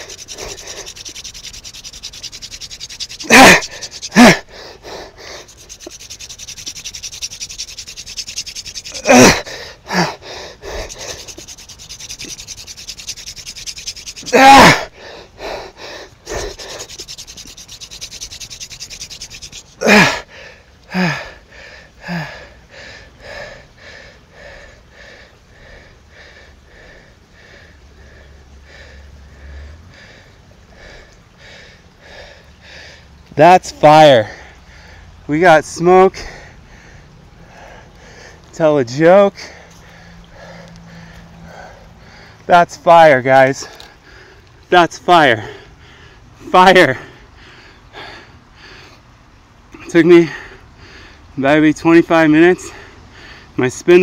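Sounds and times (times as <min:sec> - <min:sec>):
hand drill rubbing hiss: 0:00.0 - 0:20.3
person panting: 0:00.0 - 0:35.2, 0:36.1 - 0:38.5, 0:39.4 - 0:42.5, 0:45.4 - 0:46.2.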